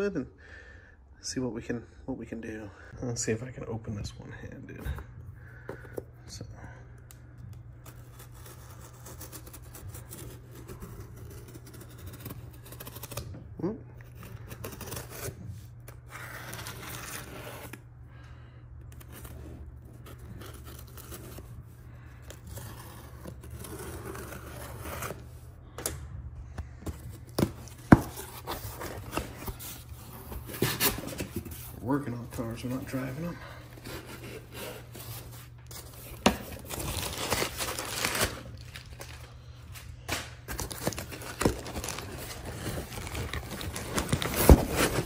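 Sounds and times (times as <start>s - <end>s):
steady low hum: 0.2s - 45.0s
cardboard rustling and scraping: 26.6s - 39.2s, 40.5s - 45.0s.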